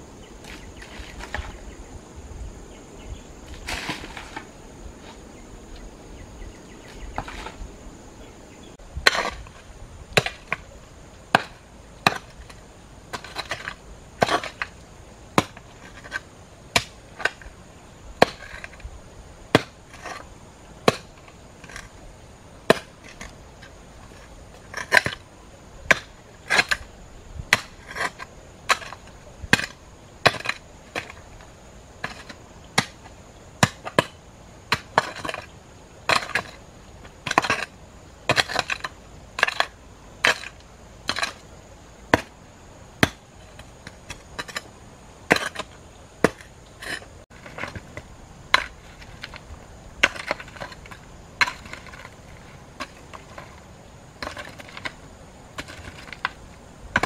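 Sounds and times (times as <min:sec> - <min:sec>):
scrape of soil and stones: 0:00.3 - 0:01.8, 0:03.4 - 0:05.8, 0:06.4 - 0:07.8, 0:08.7 - 0:17.6, 0:18.2 - 0:18.9, 0:19.5 - 0:57.0
metal tools striking stony earth: 0:11.3 - 0:14.8, 0:27.5 - 0:31.2, 0:36.1 - 0:36.6, 0:37.2 - 0:37.7, 0:38.3 - 0:41.4, 0:43.0 - 0:49.4, 0:50.0 - 0:53.5, 0:54.2 - 0:57.0.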